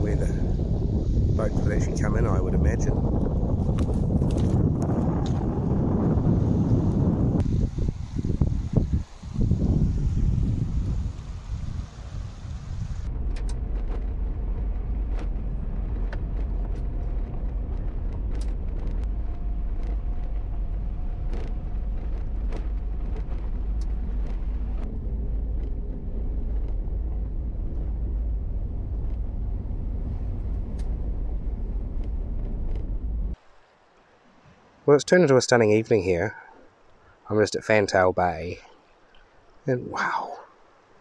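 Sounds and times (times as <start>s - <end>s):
van engine and road rumble: 0.0s - 33.4s
sharp clicks and ticks: 13.1s - 29.3s.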